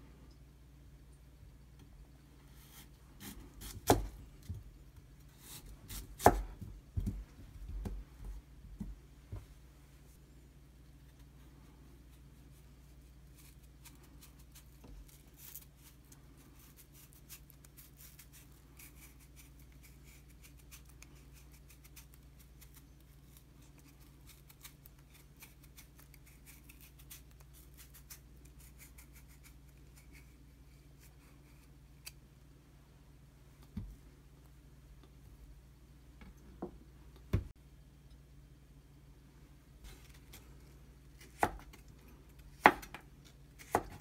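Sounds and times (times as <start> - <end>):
knife peeling radish: 2.5 - 4.6, 5.2 - 6.6, 12.0 - 32.3, 39.8 - 44.0.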